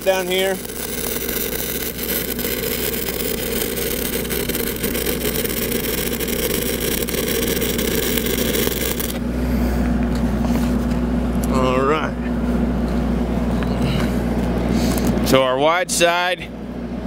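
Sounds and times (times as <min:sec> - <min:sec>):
welding arc crackling: 0:00.0 - 0:09.2
engine running: 0:00.0 - 0:17.0.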